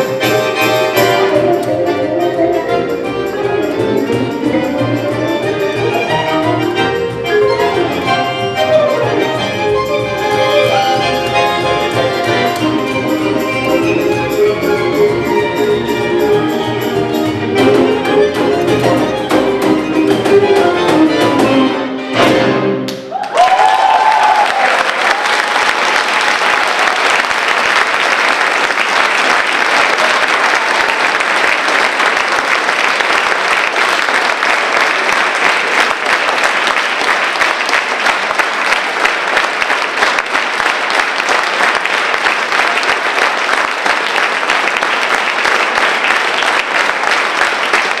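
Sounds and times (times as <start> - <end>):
audience applauding: 22.8 - 48.0.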